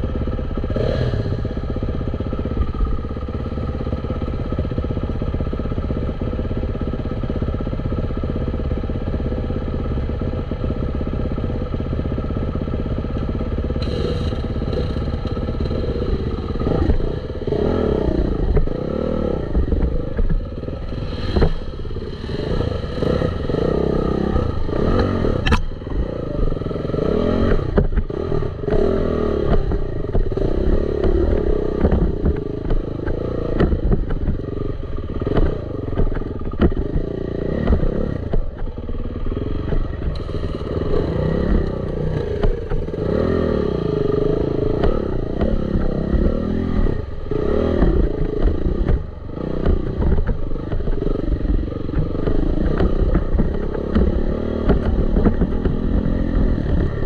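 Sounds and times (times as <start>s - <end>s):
dirt bike engine revving: 0.7s - 1.6s, 13.7s - 57.0s.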